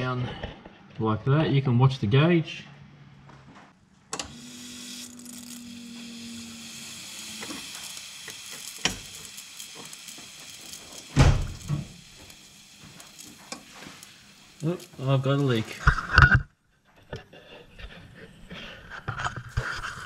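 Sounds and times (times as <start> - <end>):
fuel pump hissing: 4.2 - 15.9.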